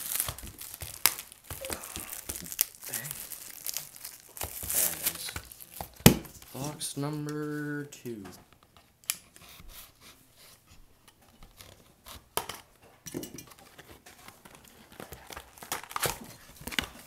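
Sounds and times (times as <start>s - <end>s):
wrap crinkling: 0.0s - 6.8s.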